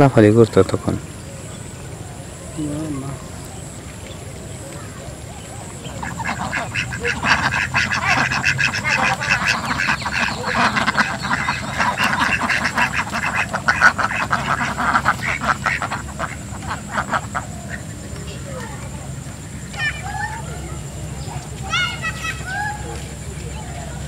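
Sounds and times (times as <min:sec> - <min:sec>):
ducks quacking: 0:04.8 - 0:24.0.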